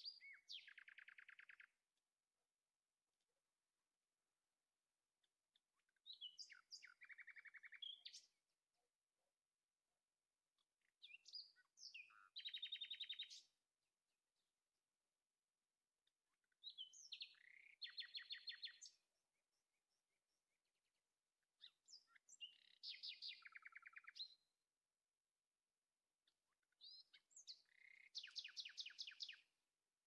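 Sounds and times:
bird song with whistles and trills: 0.0 - 1.9, 5.5 - 9.1, 10.6 - 14.6, 16.4 - 24.6, 26.3 - 29.6.

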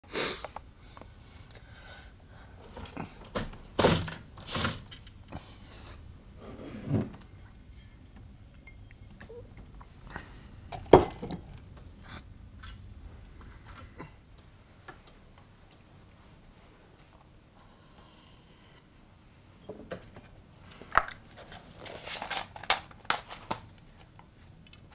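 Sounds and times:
objects knocking and rustling: 2.6 - 5.5, 6.4 - 11.9.

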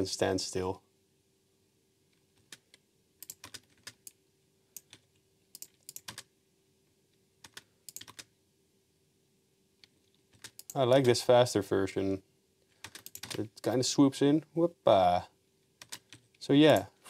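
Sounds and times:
computer keyboard keys clicking: 2.4 - 4.2, 4.8 - 6.3, 7.4 - 8.3, 9.8 - 11.2, 12.8 - 13.4, 15.8 - 16.8.

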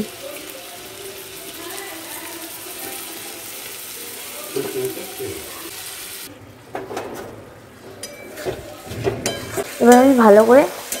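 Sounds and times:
rice sizzling in hot oil: 0.0 - 6.3, 8.7 - 11.0.

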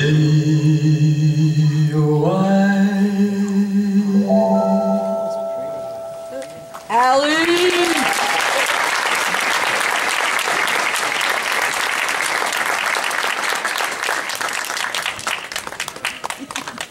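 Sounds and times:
audience applauding: 7.3 - 16.9.

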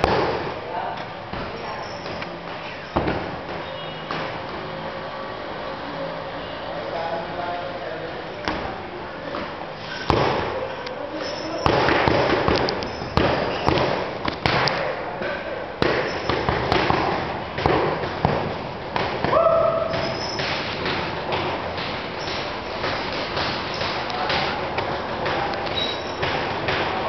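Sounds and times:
punches slapping focus mitts: 11.6 - 14.9, 15.8 - 27.0.

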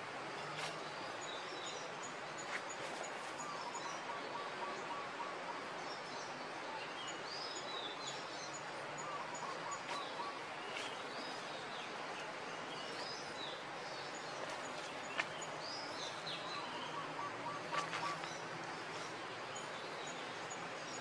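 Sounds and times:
steady background hiss: 0.0 - 21.0
birds chirping: 5.9 - 21.0.

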